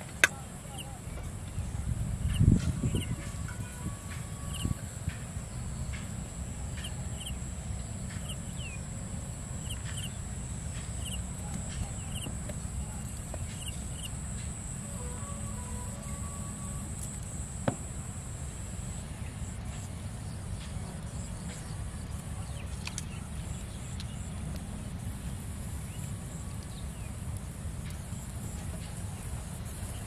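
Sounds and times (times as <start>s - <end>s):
steady low rumble: 0.0s - 30.0s
thin high whine: 6.2s - 19.0s.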